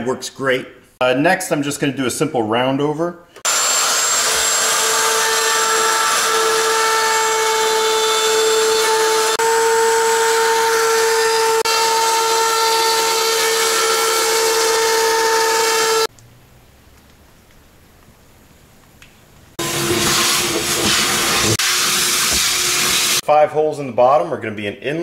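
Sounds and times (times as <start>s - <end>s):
wood router whining: 3.4s - 16.1s, 19.6s - 23.2s.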